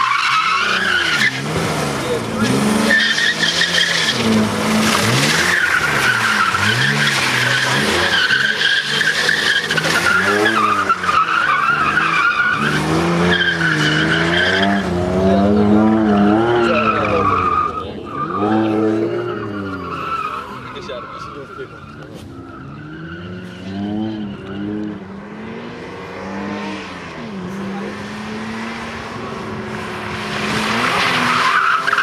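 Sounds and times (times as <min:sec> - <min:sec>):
tyres squealing: 0:00.0 - 0:01.6, 0:02.2 - 0:24.7, 0:30.5 - 0:32.0
car engine revving: 0:00.0 - 0:32.0.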